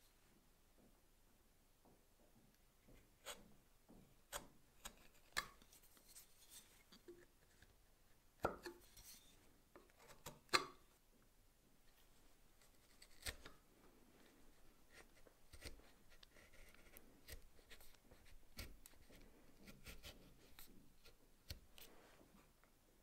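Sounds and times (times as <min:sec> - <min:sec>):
chisel scraping wood: 0:14.9 - 0:20.4.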